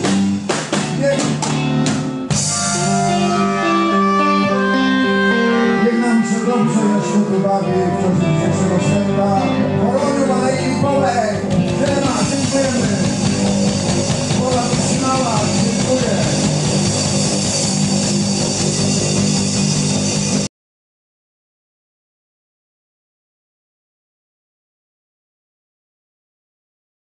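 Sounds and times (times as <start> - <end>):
blues-rock band playing live: 0.0 - 20.5.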